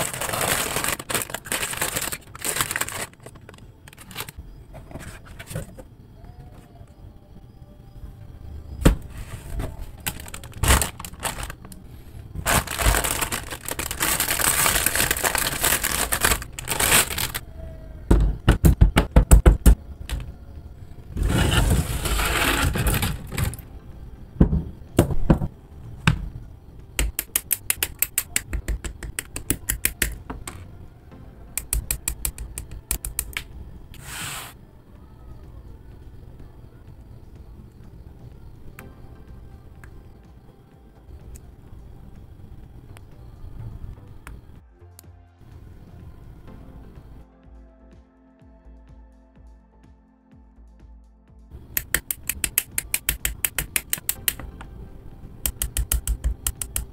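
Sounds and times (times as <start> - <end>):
paper manual rustling: 0.0 - 4.4, 9.4 - 11.7, 12.4 - 17.4
plastic parts snapping together: 27.0 - 30.6, 51.7 - 54.5, 55.5 - 56.9.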